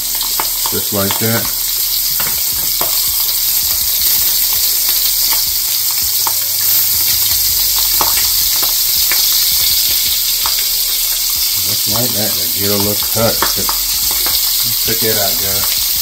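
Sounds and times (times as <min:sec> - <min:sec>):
fish sizzling in a frying pan: 0:00.0 - 0:16.0.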